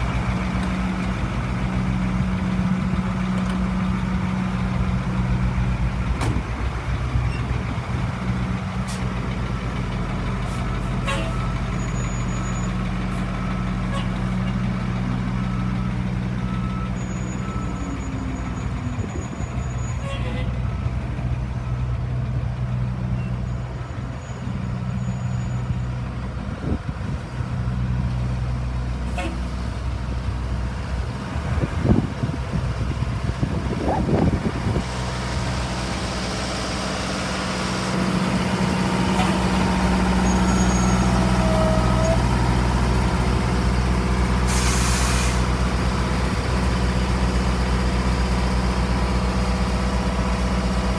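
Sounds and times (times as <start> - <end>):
truck engine running: 0.0 - 50.9
short sharp clicks or hisses: 44.5 - 45.4.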